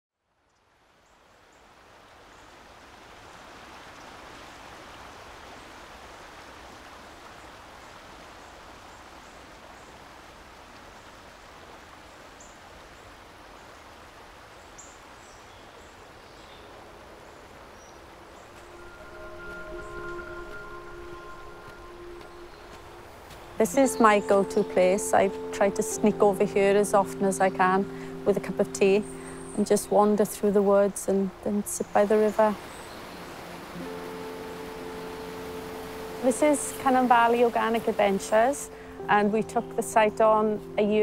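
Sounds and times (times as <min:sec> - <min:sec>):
flowing stream water: 0:00.4 - 0:41.0
soft music notes: 0:18.4 - 0:41.0.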